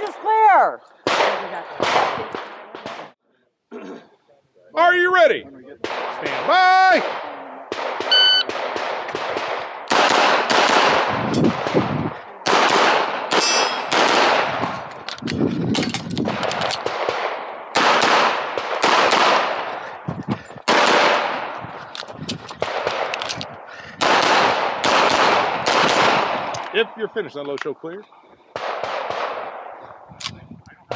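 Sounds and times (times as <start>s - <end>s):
pistol shots with echo: 1.0s - 3.2s, 5.8s - 14.8s, 16.3s - 20.0s, 20.7s - 21.6s, 22.6s - 23.3s, 24.0s - 26.8s, 28.5s - 30.3s
shot timer beep: 8.1s - 8.5s.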